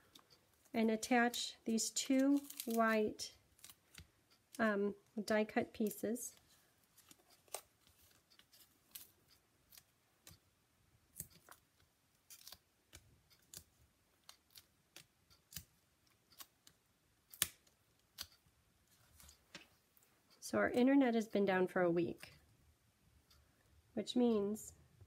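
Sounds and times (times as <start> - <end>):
paper clicks and crinkles: 2.0 - 2.9, 6.9 - 10.4.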